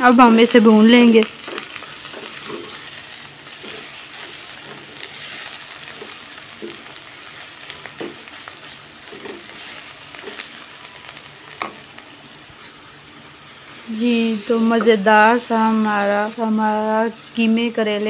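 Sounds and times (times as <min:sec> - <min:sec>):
meat sizzling in a pot: 0:00.0 - 0:18.0
wooden spatula scraping pot: 0:01.4 - 0:02.9.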